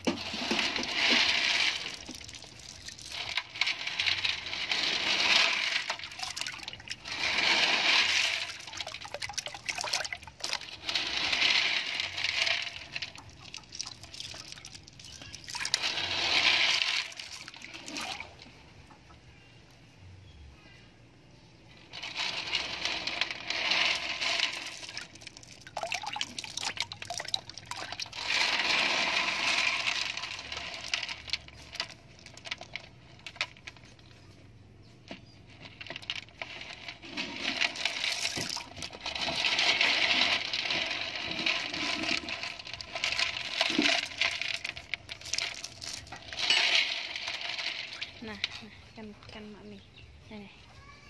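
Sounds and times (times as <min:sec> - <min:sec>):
water sloshing and splashing: 0:00.0 - 0:19.2, 0:23.8 - 0:32.6, 0:37.5 - 0:48.4
clam shells clinking: 0:00.2 - 0:18.3, 0:22.0 - 0:33.9, 0:37.4 - 0:48.5.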